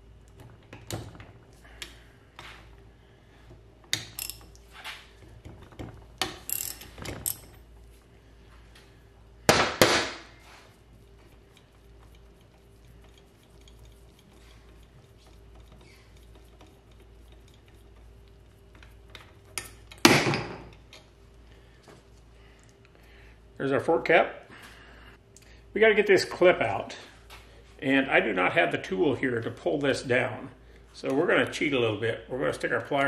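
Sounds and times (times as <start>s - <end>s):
metallic clatters: 3.8s - 7.8s
wrench ratcheting clicks: 3.9s - 4.6s.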